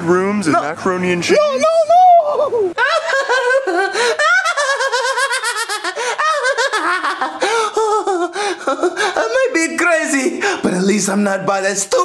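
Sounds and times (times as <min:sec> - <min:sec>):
cartoon voice laughing hysterically: 0:01.3 - 0:09.6.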